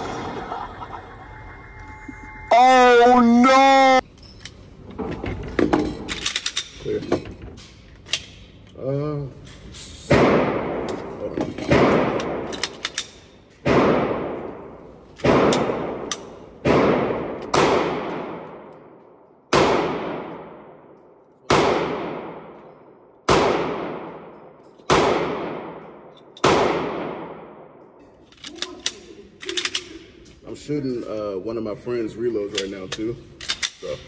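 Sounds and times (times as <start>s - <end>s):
gunshots with ringing echo: 10.1s - 10.9s, 13.6s - 27.9s.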